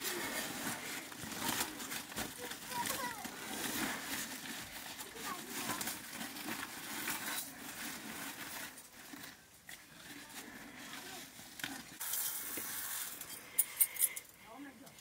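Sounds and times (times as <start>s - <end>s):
rice rustling in scoop: 12.0s - 13.3s.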